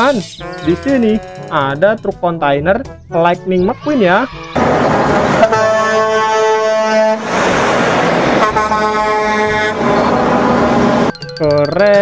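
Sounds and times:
truck air horn blasts: 0.4 - 1.7, 4.6 - 7.4, 8.3 - 11.1
truck driving past: 4.3 - 11.2.

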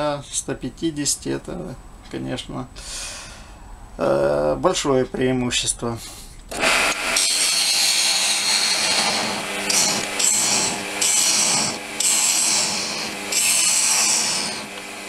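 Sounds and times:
faint lathe hum: 6.5 - 15.0
gouge cutting wood on lathe: 6.5 - 15.0.

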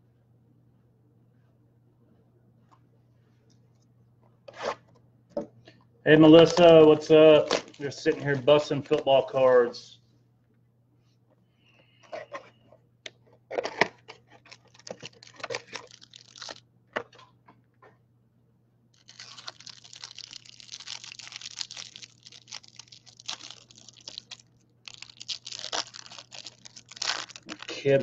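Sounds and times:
foil wrappers tearing and crinkling: 6.3 - 9.1, 13.6 - 16.6, 19.0 - 28.0.

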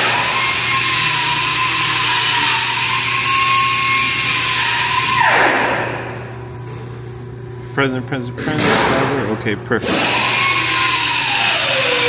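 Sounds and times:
power tool motor whining: 0.0 - 5.4, 9.8 - 12.0.

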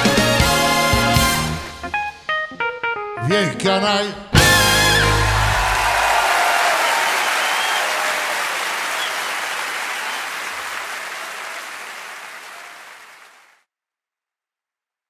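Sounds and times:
crowd applauding: 4.5 - 13.5.

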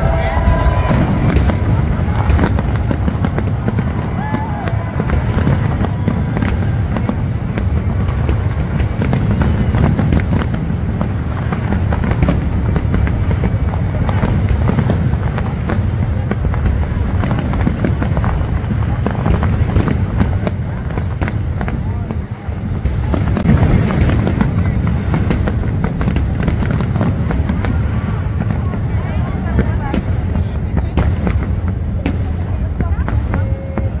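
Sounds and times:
low rumble: 0.0 - 26.4
fireworks bangs and crackles: 0.0 - 34.0.

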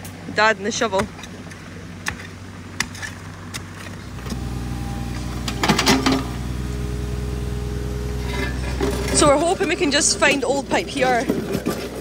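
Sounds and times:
excavator diesel engine drone: 4.0 - 12.0
low hum: 4.0 - 12.0
bucket scraping clatter: 5.3 - 6.4, 8.1 - 12.0.

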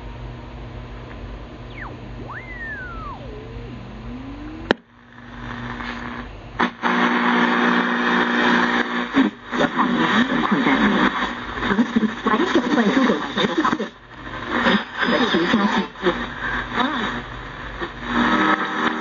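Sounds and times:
steady low tone: 1.4 - 5.7
radio static hiss: 1.6 - 19.0
whistles sweeping in pitch: 1.7 - 3.6
radio broadcast: 1.7 - 6.2, 6.9 - 17.2.

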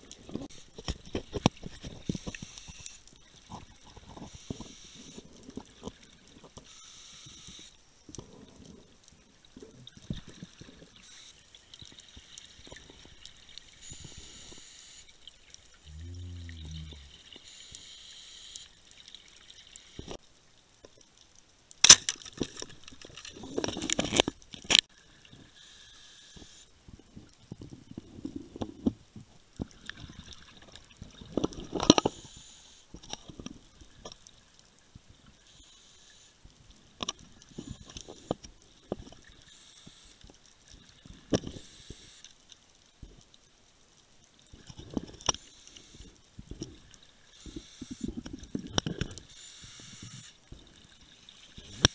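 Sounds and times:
regulator hiss on inhale: 6.6 - 8.5, 25.5 - 26.7, 32.0 - 32.9, 35.4 - 36.4, 37.5 - 38.4, 39.5 - 40.2, 41.3 - 42.4, 45.3 - 46.2, 47.2 - 48.2, 49.2 - 50.4
gurgling exhaled bubbles: 15.8 - 17.4.

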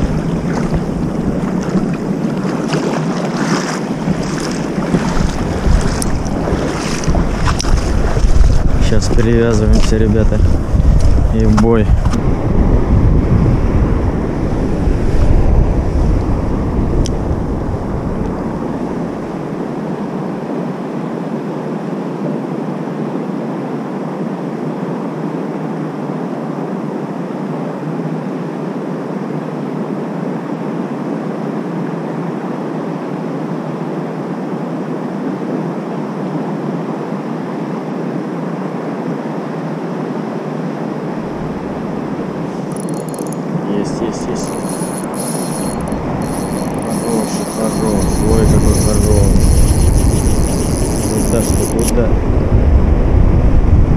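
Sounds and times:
small waves lapping: 0.0 - 12.4, 40.9 - 52.1
wind buffeting microphone: 0.0 - 19.8, 41.2 - 53.9
rush of wind: 0.0 - 53.9.

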